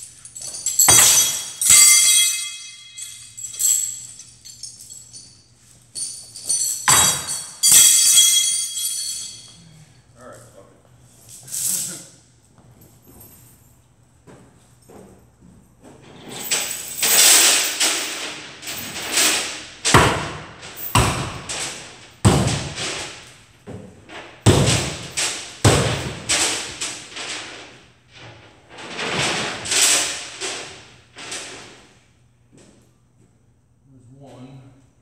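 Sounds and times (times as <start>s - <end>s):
wood crashing: 19.8s - 23.2s, 24.4s - 27.8s
loud thuds and bangs: 22.2s - 23.2s, 24.4s - 26.7s.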